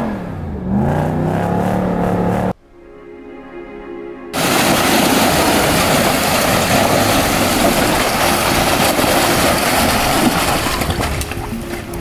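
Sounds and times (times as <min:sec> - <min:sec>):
off-road vehicle engine under load: 0:00.0 - 0:02.6, 0:04.4 - 0:12.0
dense rushing noise: 0:04.4 - 0:11.5.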